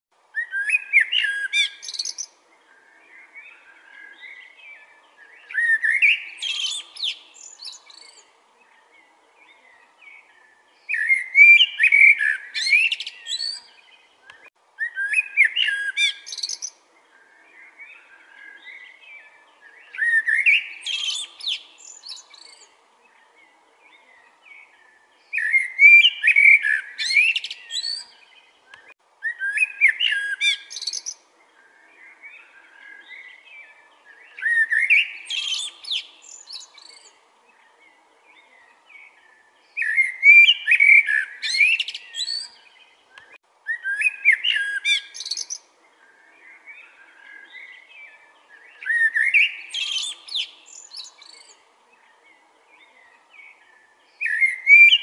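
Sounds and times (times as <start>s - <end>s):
blackbird singing: 0.3s - 55.0s
bird twittering: 0.4s - 4.6s, 10.9s - 16.7s, 25.3s - 31.2s, 39.7s - 51.6s, 54.2s - 55.0s.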